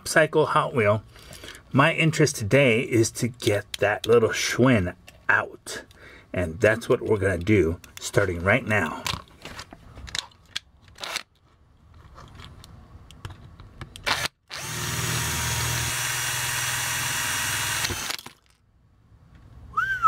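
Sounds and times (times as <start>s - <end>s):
power drill drilling metal: 14.1s - 18.3s.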